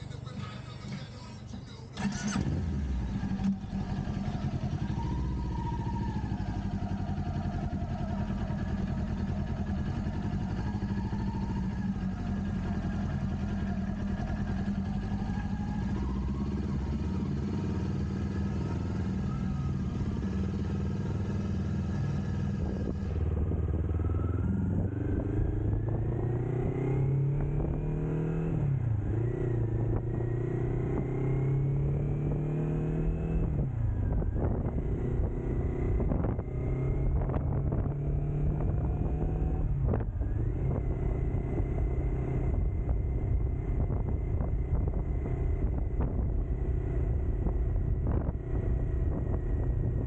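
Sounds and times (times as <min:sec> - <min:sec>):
motorcycle engine starting and idling: 0:00.1 - 0:26.8.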